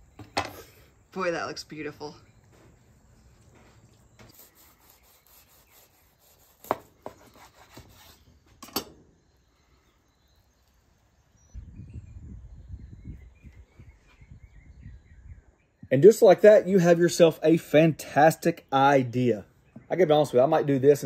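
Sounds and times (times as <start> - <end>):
knife sawing through tortilla: 4.3 - 8.3.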